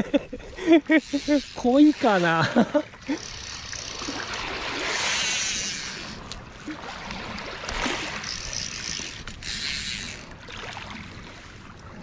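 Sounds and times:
fishing reel clicking: 0:00.8 - 0:06.5, 0:07.1 - 0:10.4.

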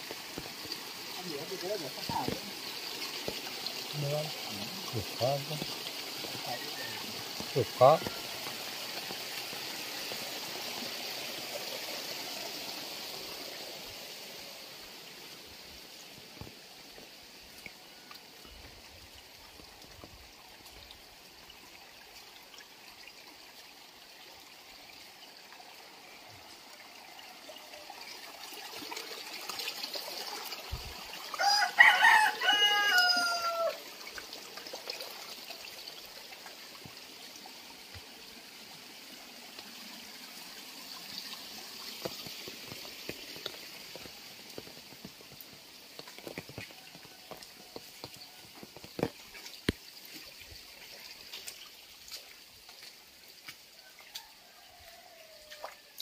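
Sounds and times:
rainwater trickling in drain: 0:00.0 - 0:56.0
rooster crowing: 0:31.4 - 0:33.8, 0:53.8 - 0:55.9.

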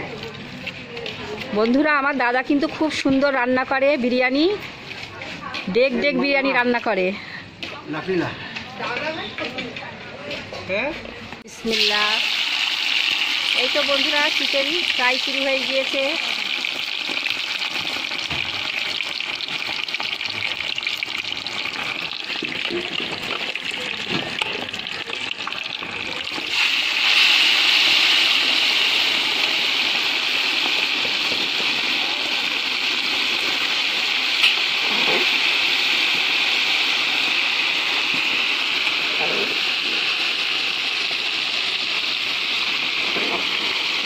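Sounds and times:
food sizzling in hot oil: 0:11.5 - 0:44.0.

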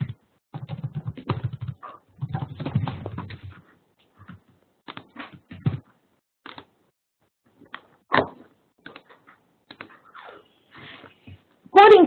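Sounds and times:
computer keyboard typing: 0:00.6 - 0:01.8.

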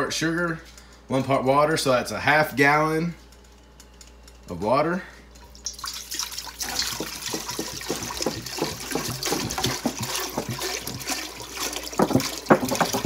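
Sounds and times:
water pouring into a metal pot: 0:05.5 - 0:13.0.

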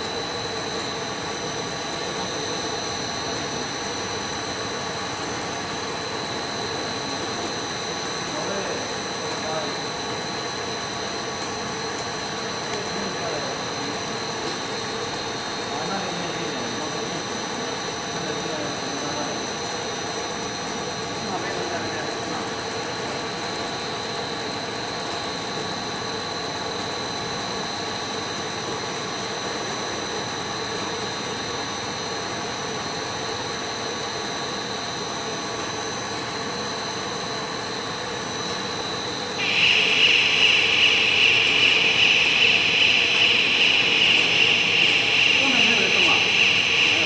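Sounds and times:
machine hum with whining tones: 0:00.0 - 0:47.0
loud high-pitched hiss: 0:39.4 - 0:44.7.

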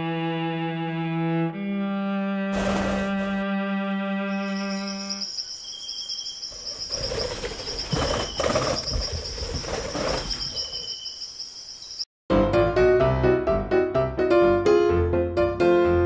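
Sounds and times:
high-pitched insect trill: 0:04.2 - 0:12.1
bird calls: 0:04.4 - 0:12.0.

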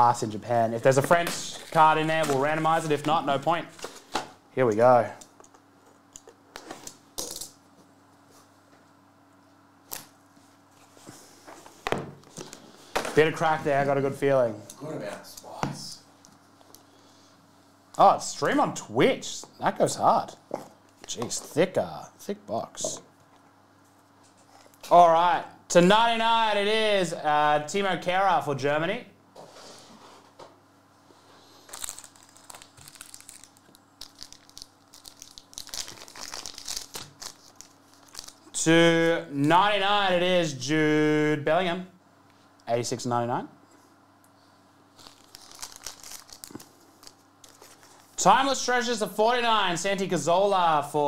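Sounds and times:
faint steady hum: 0:00.0 - 0:51.0
trading cards rustling: 0:31.6 - 0:38.5, 0:45.0 - 0:48.2.

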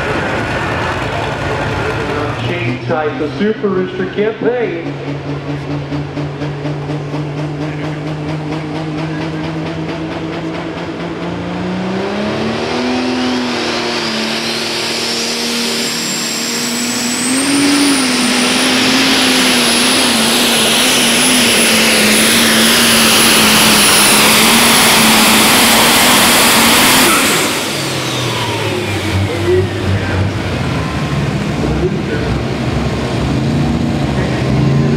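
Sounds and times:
diesel engine at full throttle: 0:00.0 - 0:34.9
turbocharger whistle: 0:11.6 - 0:30.2.

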